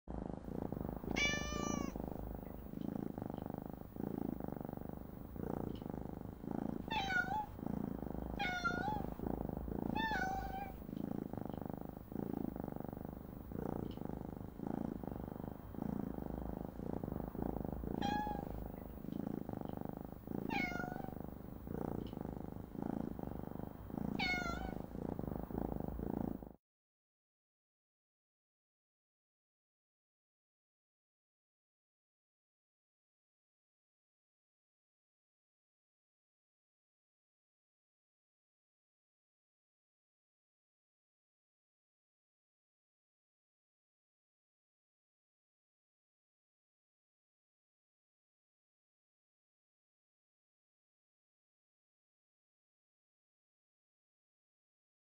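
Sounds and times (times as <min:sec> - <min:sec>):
cat purring: 0:00.1 - 0:26.6
cat meowing: 0:01.1 - 0:02.0, 0:06.9 - 0:07.5, 0:08.4 - 0:09.2, 0:09.9 - 0:10.8, 0:18.0 - 0:18.6, 0:20.5 - 0:21.1, 0:24.2 - 0:24.8.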